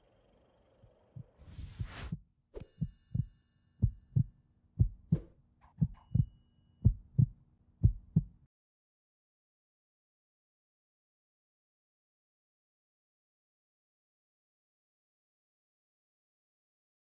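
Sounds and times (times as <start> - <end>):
heartbeat thumps: 1.2 - 2.2, 2.8 - 6.2, 6.8 - 8.4
whoosh: 1.4 - 2.7
faint bright chime: 5.9 - 7.1.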